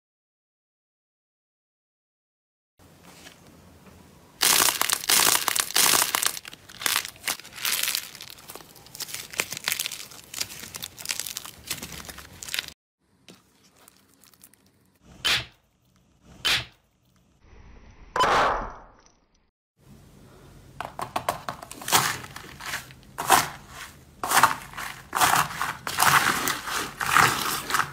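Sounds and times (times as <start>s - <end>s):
hands kneading crackling slime: 4.4s - 12.8s
plastic bottle crunching: 4.4s - 12.8s, 21.5s - 27.9s.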